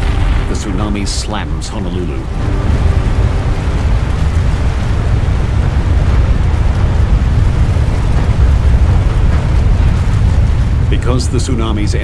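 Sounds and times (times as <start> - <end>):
deep rumble of rushing water: 0.0 - 12.0.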